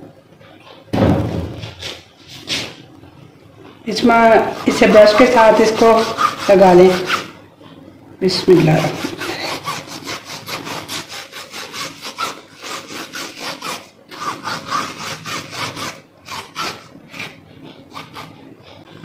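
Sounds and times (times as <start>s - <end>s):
brush scraping plastic board: 4.0s - 7.3s, 8.5s - 19.0s.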